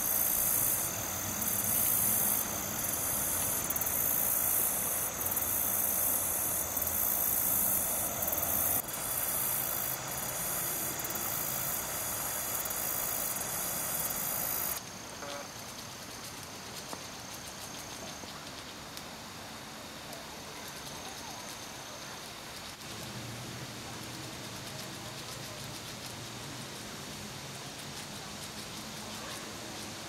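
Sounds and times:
insects shrilling: 0:00.0 - 0:14.8
soft outdoor ambience: 0:00.0 - 0:30.0.

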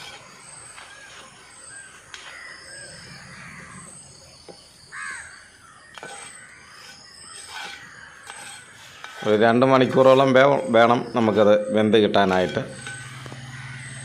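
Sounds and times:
crow cawing: 0:04.9 - 0:05.4, 0:12.9 - 0:14.0.

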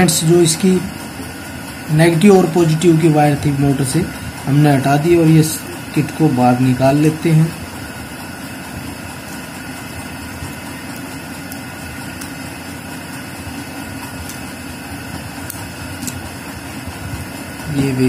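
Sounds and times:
machine humming: 0:00.0 - 0:18.0.

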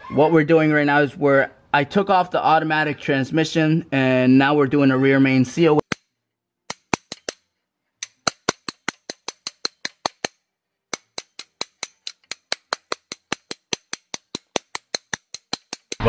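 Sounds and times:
hammer tapping metal seal driver: 0:06.7 - 0:07.4, 0:08.0 - 0:16.0.

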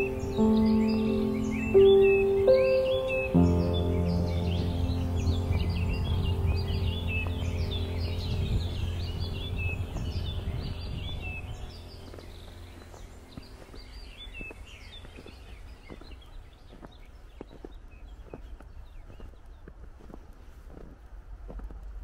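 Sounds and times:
footsteps in snow: 0:00.0 - 0:22.0
low steady hum: 0:00.0 - 0:22.0
small birds chirping: 0:00.0 - 0:22.0.

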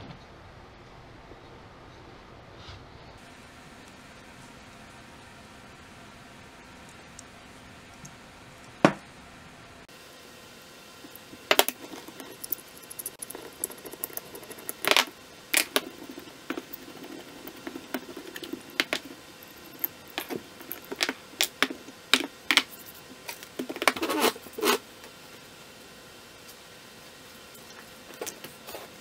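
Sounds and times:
metal parts clinking on wood: 0:11.1 - 0:22.8.

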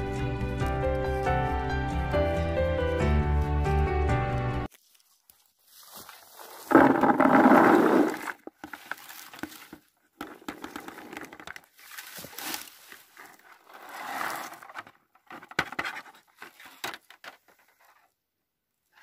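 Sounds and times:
leafy rustling and scraping: 0:04.7 - 0:10.0, 0:11.6 - 0:14.8
berries pattering into plastic bucket: 0:05.8 - 0:13.3.

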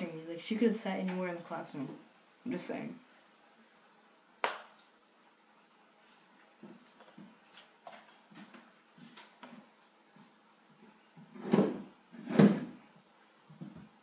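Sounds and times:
soft footsteps on a floor: 0:06.0 - 0:11.8, 0:12.9 - 0:14.0.

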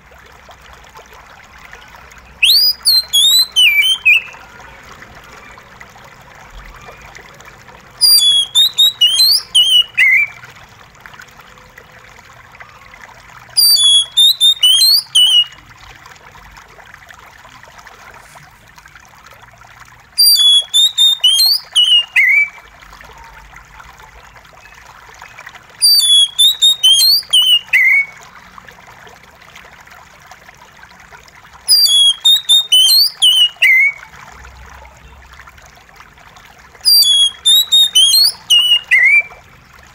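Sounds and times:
running water trickle: 0:00.0 - 0:39.9
bird singing whistles: 0:02.4 - 0:04.4, 0:08.0 - 0:10.4, 0:13.6 - 0:15.6, 0:20.2 - 0:22.6, 0:25.8 - 0:28.2, 0:31.7 - 0:34.0, 0:36.8 - 0:39.4.

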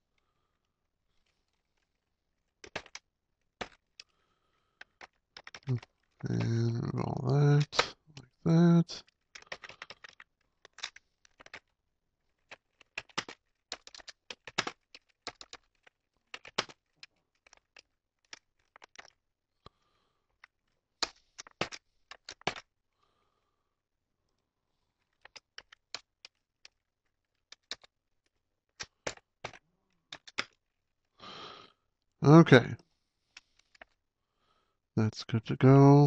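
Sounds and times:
computer keyboard typing: 0:04.8 - 0:06.5, 0:09.4 - 0:11.6, 0:12.4 - 0:19.1, 0:28.8 - 0:30.5.

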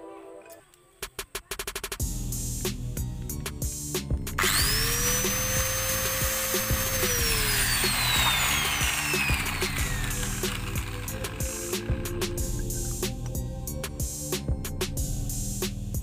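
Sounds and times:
electric grinder whine: 0:04.4 - 0:12.7.

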